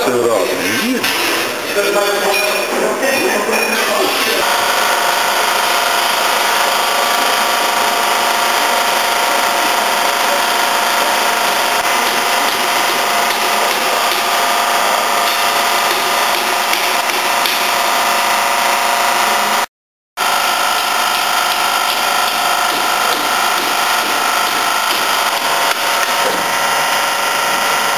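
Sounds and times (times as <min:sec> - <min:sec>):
electric mixer motor whining: 0:04.0 - 0:27.9.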